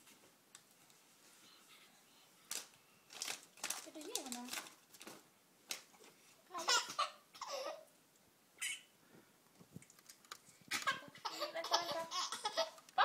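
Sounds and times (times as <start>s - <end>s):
baby laughing and squealing: 6.6s - 7.9s, 8.6s - 8.9s, 10.7s - 12.8s.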